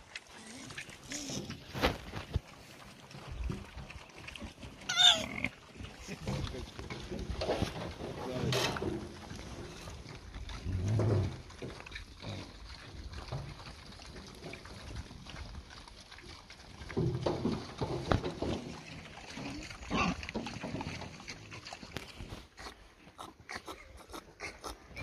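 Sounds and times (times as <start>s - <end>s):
wild boar grunting: 4.8s - 15.1s, 17.8s - 25.0s.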